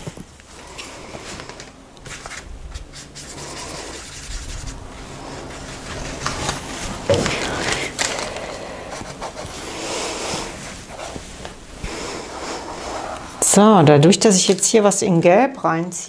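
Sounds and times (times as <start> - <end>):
paintbrush scrubbing paint on palette: 2.1 - 13.4.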